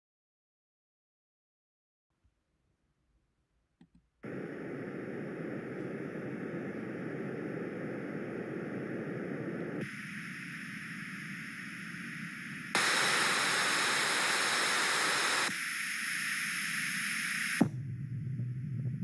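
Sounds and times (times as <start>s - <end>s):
generated white noise: 3.9s - 19.0s.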